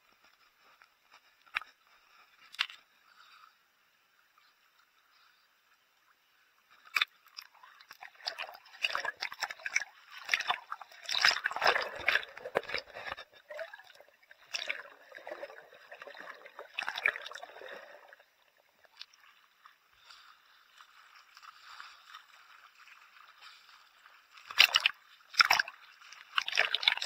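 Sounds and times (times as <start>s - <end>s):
splashes and crackles: 0.0s - 3.4s, 6.0s - 27.0s
water sloshing and gurgling: 6.1s - 27.0s
bubbles rushing: 8.1s - 18.6s.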